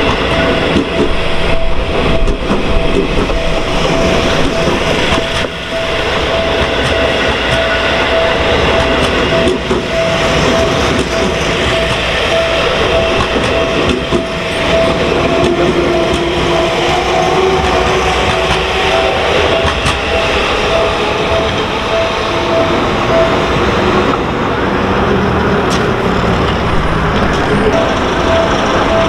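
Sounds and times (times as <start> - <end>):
level crossing warning bell: 0.0 - 25.1, 26.1 - 29.0
train wheels on rails: 0.0 - 29.0.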